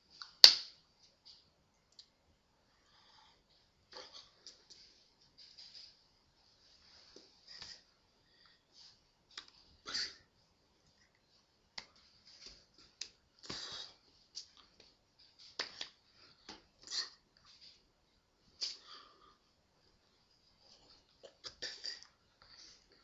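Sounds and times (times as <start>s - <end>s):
person breathing: 2.7s - 4.8s, 7.0s - 9.0s, 13.4s - 14.1s, 18.6s - 19.6s
hands and sleeves rustling: 3.5s - 8.0s, 8.6s - 19.1s.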